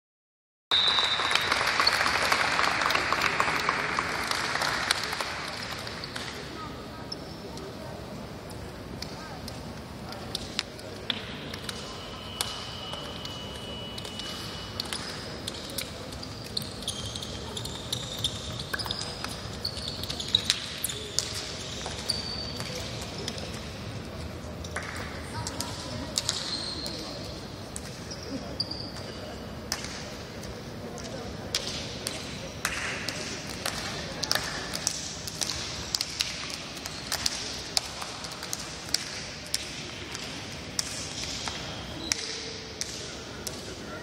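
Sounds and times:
crowd applause: 0.7 - 6.0.

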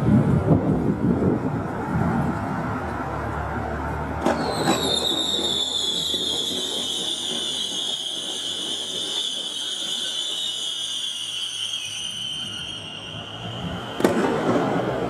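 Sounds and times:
firework pops: 4.2 - 7.9, 13.9 - 15.0
firework whistle falling in pitch: 4.2 - 14.8.

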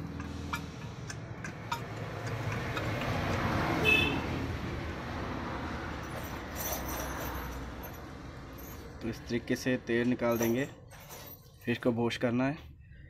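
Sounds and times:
vehicle engine passing: 0.0 - 9.8
low traffic hum: 0.0 - 13.0.

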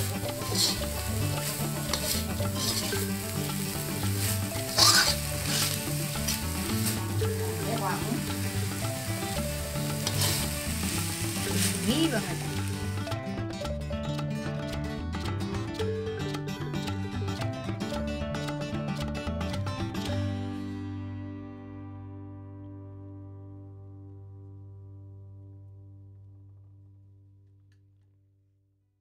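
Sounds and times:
metal spatula scraping a pan: 0.0 - 12.6
chicken sizzling in a wok: 0.0 - 13.2.

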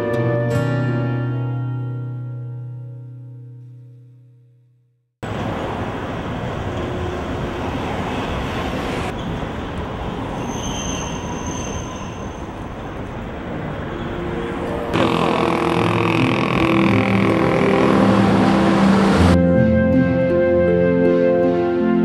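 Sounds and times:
background music with sustained notes: 0.0 - 3.6, 14.2 - 22.0
traffic rumble: 5.2 - 19.5
streetcar squeal: 5.3 - 19.4.

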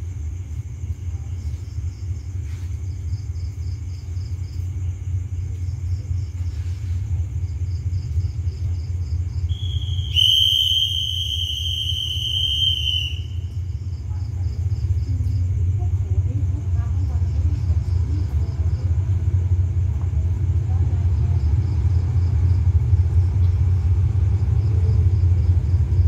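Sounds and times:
diesel train engine rumbling: 0.0 - 26.0
insects chirping: 0.0 - 26.0
shrill whistle: 9.5 - 13.5.

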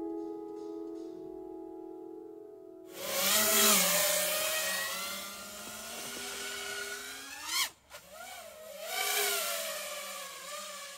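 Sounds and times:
drone motors whining: 3.0 - 10.9.

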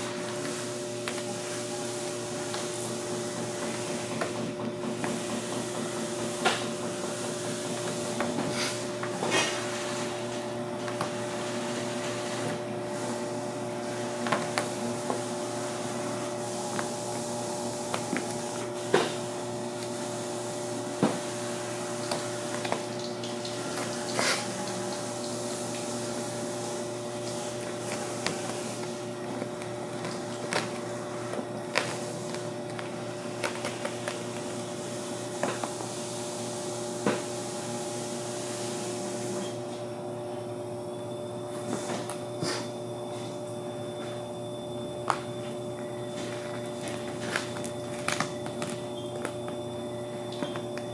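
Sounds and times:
background hum and hiss: 0.0 - 50.9
plastic film crackling as peeled: 46.5 - 49.6.

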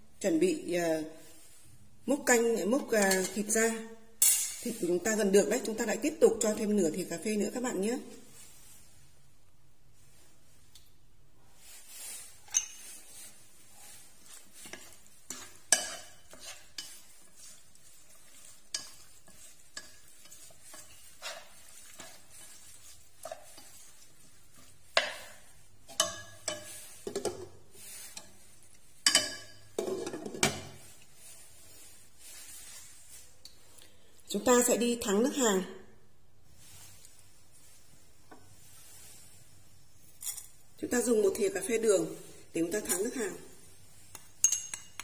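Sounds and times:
spoon scraping metal pot: 2.9 - 3.6, 11.9 - 30.8.

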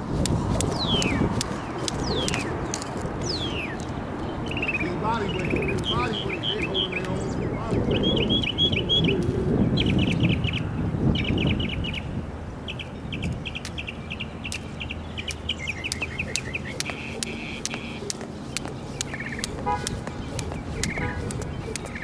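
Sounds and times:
sharp clicks: 0.2 - 3.9, 15.3 - 22.0
songbird chirping: 0.7 - 22.0.

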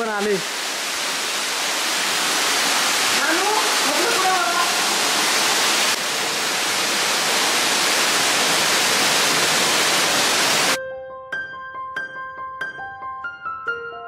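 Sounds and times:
waterfall rushing: 0.0 - 10.8.

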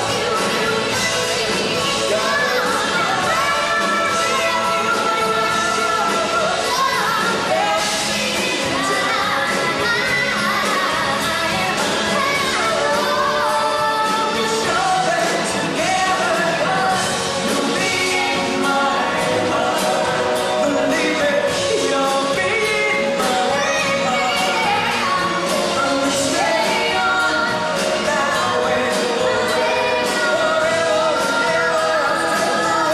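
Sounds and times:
bass guitar: 0.0 - 32.9
drums: 0.0 - 32.9
man singing: 12.8 - 32.9.

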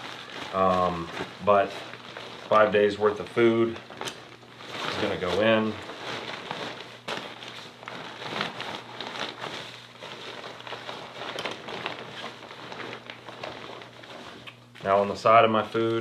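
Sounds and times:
bag rustling and crinkling: 0.0 - 16.0
steady low hum: 0.0 - 16.0.

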